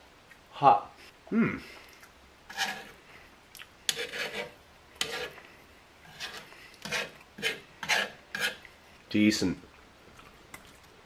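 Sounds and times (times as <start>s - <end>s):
metal utensil scraping griddle: 2.5s - 3.0s, 3.9s - 5.4s, 6.0s - 8.6s.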